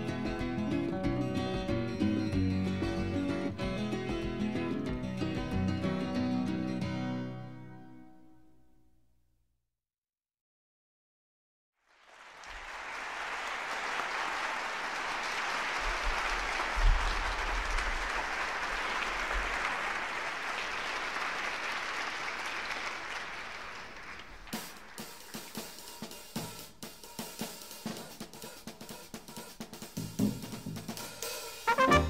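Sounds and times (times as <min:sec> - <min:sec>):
crowd applauding and cheering: 0:11.8 - 0:25.5, 0:31.7 - 0:32.0
drum hits: 0:24.6 - 0:32.0.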